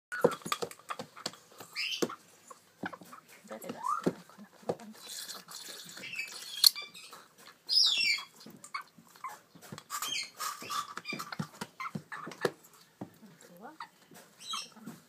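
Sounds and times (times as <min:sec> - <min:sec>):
parrot chicks squawking: 0:01.0 - 0:04.2, 0:05.0 - 0:12.6, 0:13.8 - 0:15.0.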